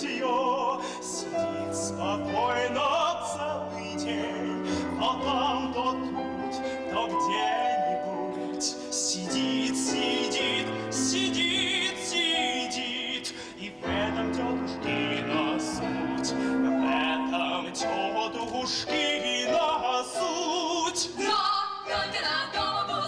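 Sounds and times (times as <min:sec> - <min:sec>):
orchestral accompaniment: 0:00.0 - 0:20.9
person singing with vibrato: 0:00.0 - 0:23.0.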